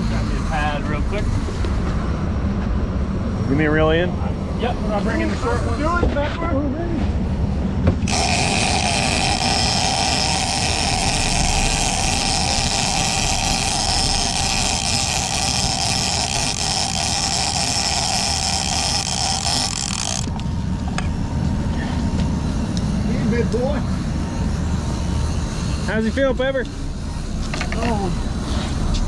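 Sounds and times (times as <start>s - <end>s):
steady low rumble: 0.0s - 29.0s
fishing reel whirring: 8.0s - 21.1s.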